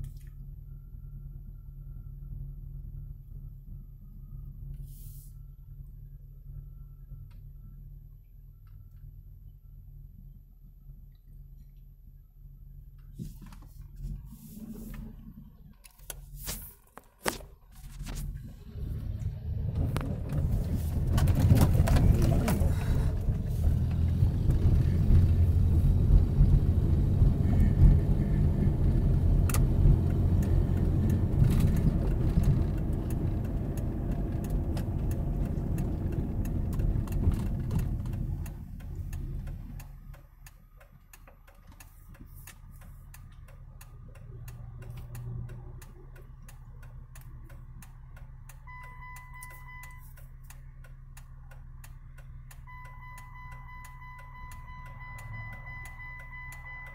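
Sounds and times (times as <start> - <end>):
car road and engine rumble: 0.0 - 56.9
car engine idling: 5.4 - 56.9
turn signal ticking: 19.2 - 56.9
steady beep tone: 48.7 - 50.2, 52.6 - 56.9.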